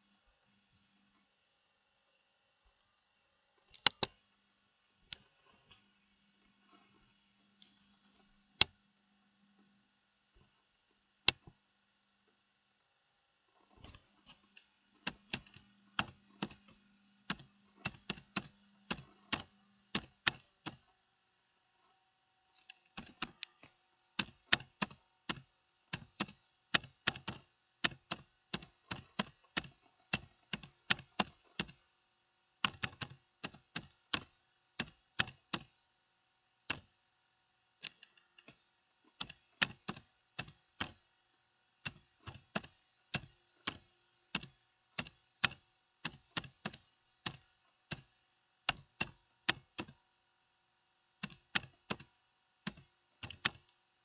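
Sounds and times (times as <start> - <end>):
keyboard keystroke clicks: 3.7 - 4.2, 36.7 - 36.9.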